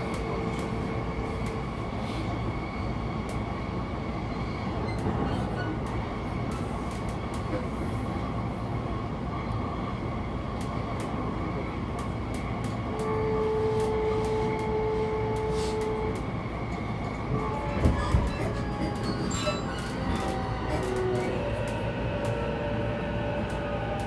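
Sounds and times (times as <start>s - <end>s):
train wheels rumbling on rails: 0.0s - 24.0s.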